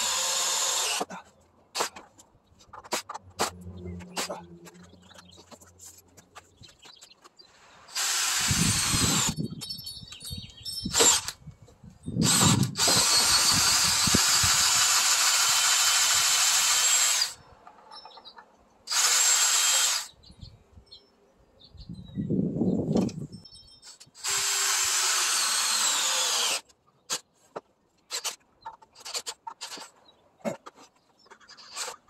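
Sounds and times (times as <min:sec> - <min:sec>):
power driver driving screws: 0:00.0 - 0:01.1, 0:07.9 - 0:09.4, 0:10.9 - 0:11.4, 0:12.2 - 0:17.4, 0:24.2 - 0:27.2.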